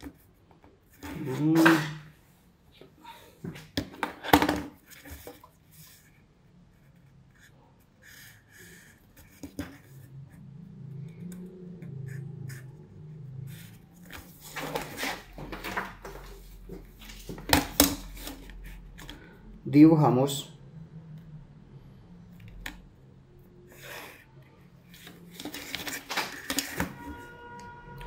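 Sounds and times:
marker scratching on cardboard: 6.8s - 10.1s.

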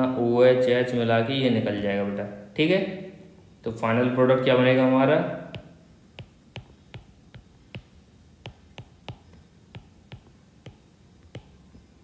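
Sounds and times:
stylus tapping on tablet screen: 5.5s - 12.0s.

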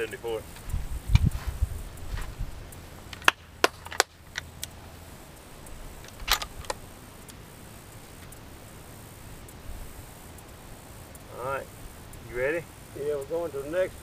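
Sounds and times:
rifle bolt clicking: 6.0s - 6.8s
rifle bolt rattle: 6.0s - 6.8s.

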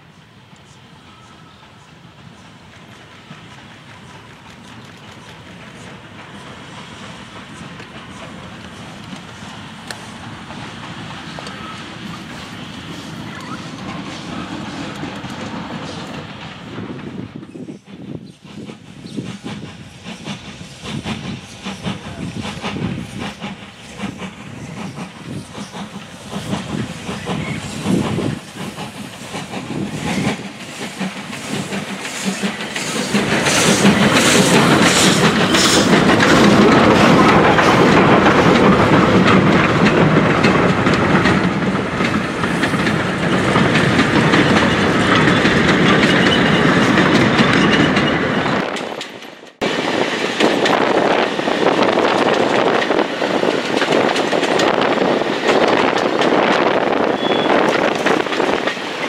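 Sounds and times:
steam locomotive exhaust beats: 0.0s - 59.0s
wagons clattering over rails: 20.8s - 49.6s.

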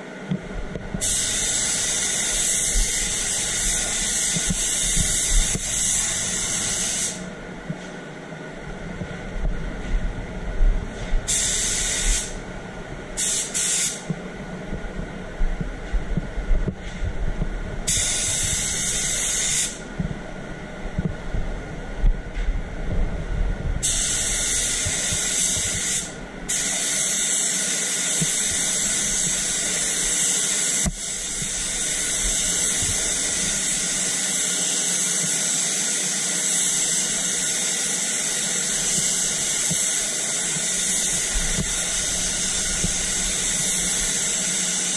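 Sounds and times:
spray booth air flow hum: 0.0s - 44.9s
spray gun hissing: 1.0s - 7.3s, 11.0s - 12.4s, 13.2s - 14.1s, 17.9s - 19.8s, 23.8s - 44.9s.

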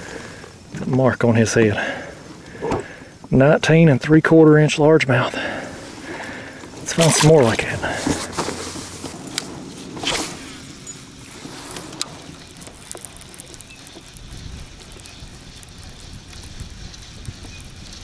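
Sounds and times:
wind and water around kayak: 0.0s - 18.0s
wind rumble on microphone: 6.7s - 18.0s
brief rush of noise: 10.0s - 10.7s.

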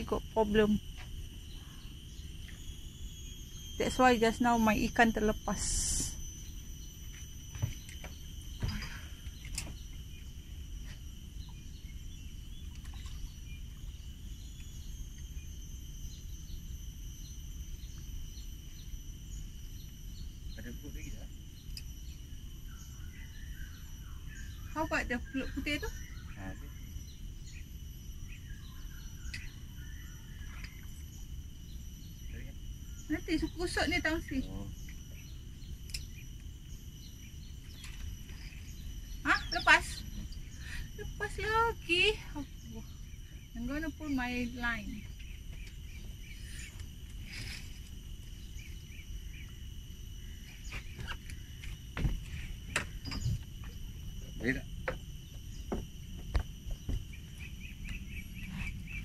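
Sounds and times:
high-pitched insect drone: 0.0s - 59.0s
bird chirps: 11.4s - 47.7s.

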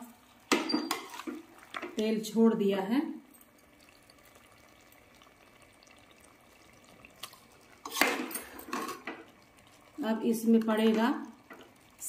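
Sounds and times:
masala sizzling in oil: 0.1s - 2.9s, 3.5s - 12.0s
metal clatter and scrape in pot: 0.5s - 1.9s, 7.8s - 9.2s.

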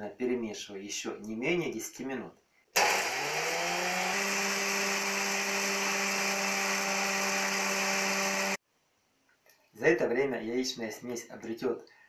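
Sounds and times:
stand mixer motor hum: 2.8s - 8.6s.

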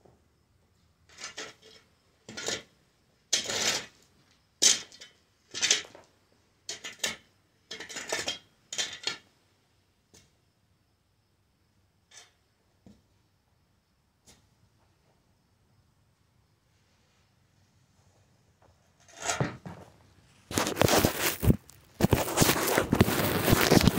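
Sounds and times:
shovel scraping gravelly dirt: 3.3s - 4.0s, 20.4s - 23.9s.

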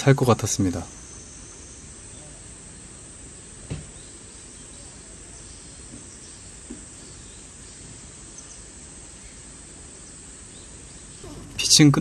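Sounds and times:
insects chirring: 0.0s - 12.0s
faint tap: 3.7s - 3.9s.

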